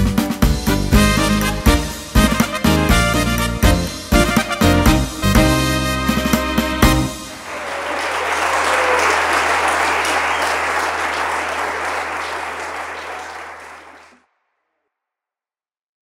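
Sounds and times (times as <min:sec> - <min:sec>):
audience applauding: 0:07.2 - 0:14.2.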